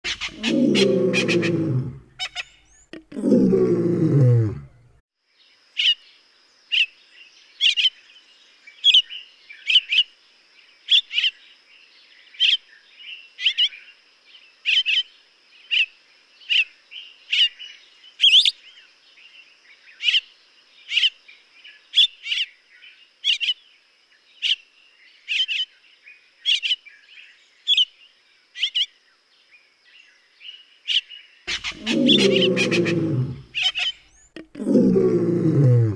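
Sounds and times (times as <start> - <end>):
bird calling sharp notes: 0.0 - 3.2, 31.5 - 35.2
deep sounds falling in pitch: 31.5 - 33.6.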